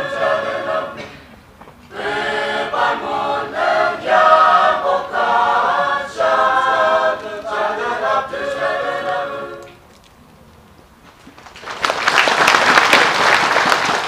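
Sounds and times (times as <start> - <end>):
choir singing a cappella hymn: 0.0 - 9.8.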